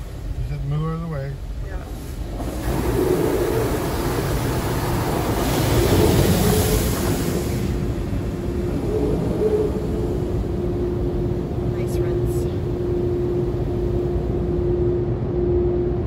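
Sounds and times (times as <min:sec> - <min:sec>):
thin steady hum: 0:00.0 - 0:16.0
water spray hitting car: 0:01.8 - 0:08.1.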